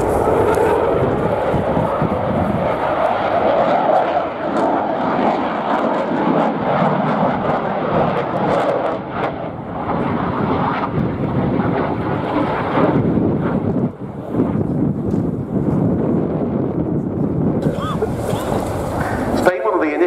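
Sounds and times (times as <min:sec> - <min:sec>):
fighter jet roar: 0:00.0 - 0:20.0.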